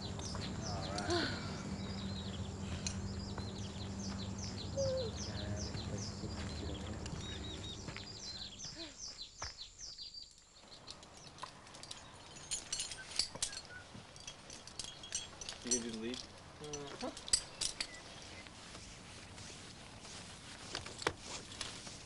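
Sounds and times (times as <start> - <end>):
low steady hum: 0.0 - 9.0
songbird chirping: 0.0 - 22.0
sharp clicks and clinks: 10.8 - 18.2.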